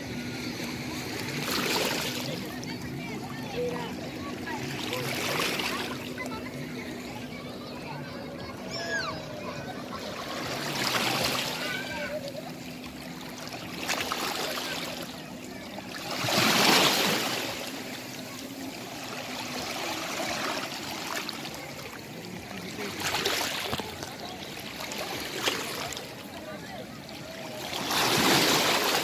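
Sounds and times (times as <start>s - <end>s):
sea waves washing over rocks: 15.9s - 18.1s, 27.4s - 29.0s.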